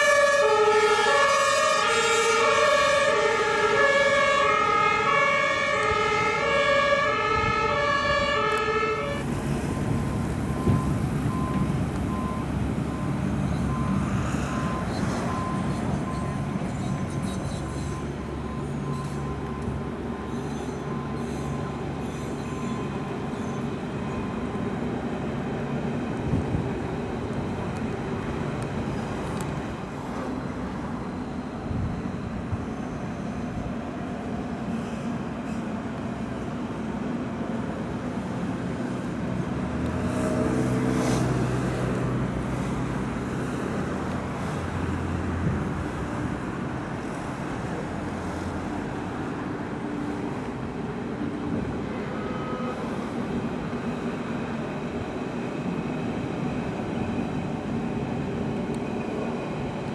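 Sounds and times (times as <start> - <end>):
two-tone siren: 0.0 - 16.4, 17.9 - 24.6, 51.9 - 53.1
electric trains rumbling on viaduct: 0.0 - 59.9.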